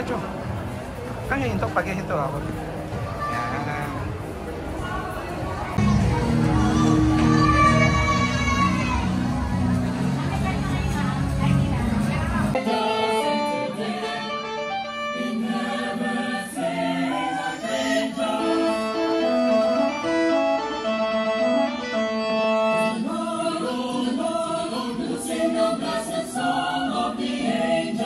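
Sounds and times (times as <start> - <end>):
choir singing in parts: 12.5 - 28.0.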